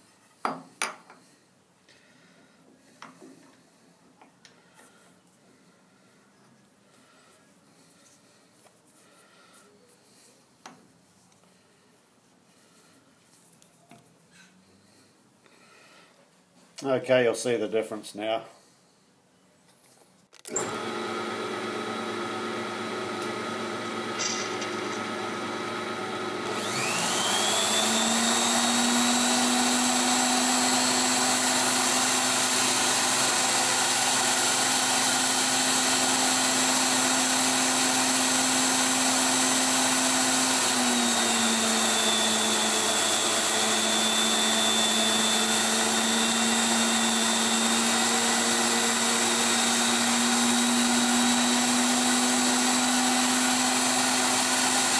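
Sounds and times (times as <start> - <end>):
tool post grinder whining: 20.5 - 54.9.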